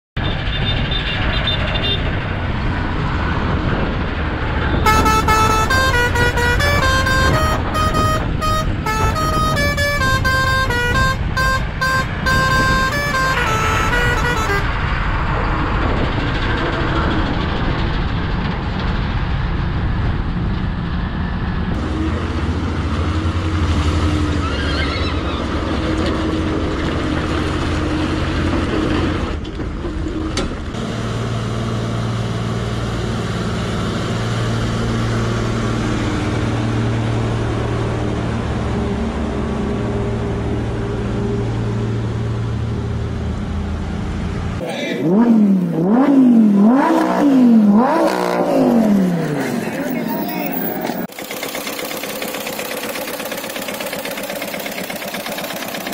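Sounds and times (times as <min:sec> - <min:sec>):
road and wind rush: 0:00.2 - 0:55.9
truck engines humming: 0:00.2 - 0:55.9
musical truck horn: 0:04.8 - 0:15.2.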